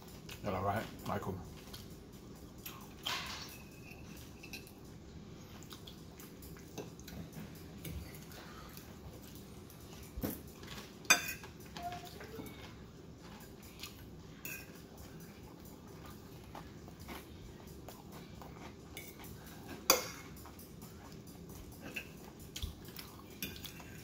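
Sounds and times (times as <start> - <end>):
fork clinking and scraping on plate: 2.6 - 5.0, 10.3 - 11.8, 13.2 - 17.3, 18.6 - 24.0.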